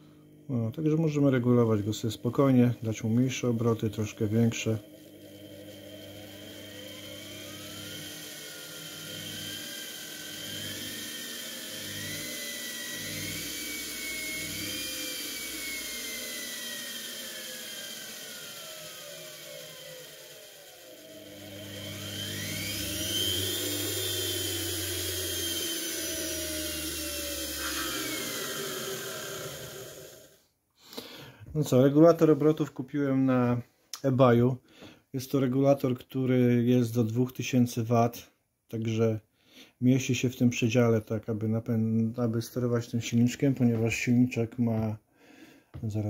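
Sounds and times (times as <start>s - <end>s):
washing machine motor whine: 0.5s - 30.4s.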